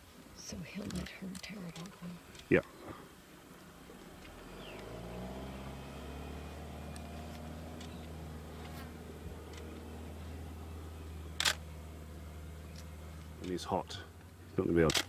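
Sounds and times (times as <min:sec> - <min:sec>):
fly buzzing: 0:04.1 - 0:13.4
faint ticks: 0:06.9 - 0:08.8.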